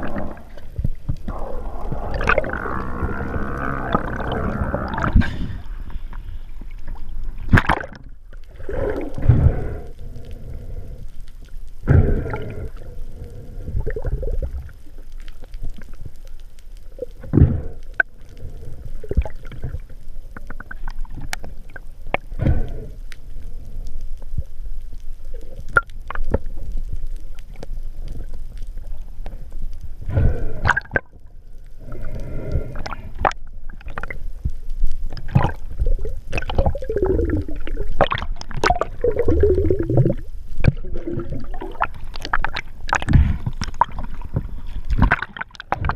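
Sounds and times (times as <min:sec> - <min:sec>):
underwater water rushing: 0:00.0 - 0:11.0, 0:31.8 - 0:45.9.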